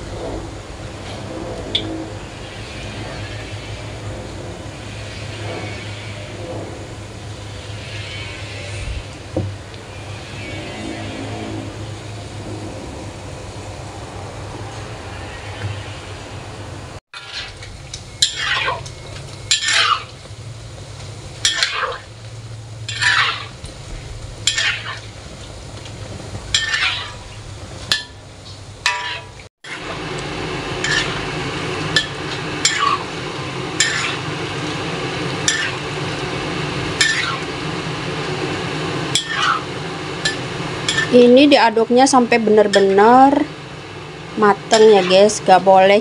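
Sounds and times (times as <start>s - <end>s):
oil sizzling deep-frying: 0.0s - 16.3s, 17.0s - 46.0s
metal spatula scraping a wok: 17.2s - 20.2s, 21.4s - 22.1s, 22.8s - 25.2s, 26.5s - 28.2s, 28.8s - 30.0s, 30.8s - 34.8s, 35.4s - 36.0s, 37.0s - 37.4s, 39.1s - 41.2s, 44.7s - 45.4s.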